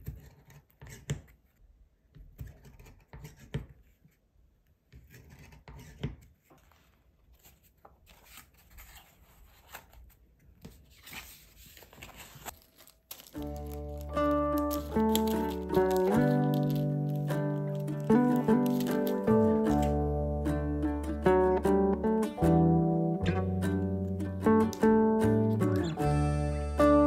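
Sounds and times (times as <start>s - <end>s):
cardboard and paper rustling: 5.8s - 20.1s.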